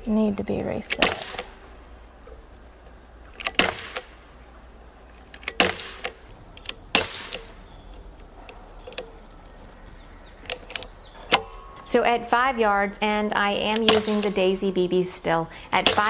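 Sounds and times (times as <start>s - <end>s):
bb pistol shots: 0.9s - 1.7s, 3.3s - 4.2s, 5.4s - 7.7s, 13.7s - 14.5s, 15.8s - 16.0s.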